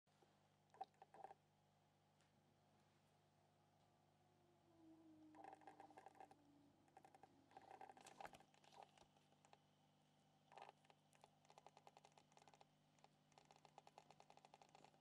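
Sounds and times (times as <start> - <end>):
steady low hum: 0.2 - 15.0
quick runs of ticks: 10.5 - 15.0.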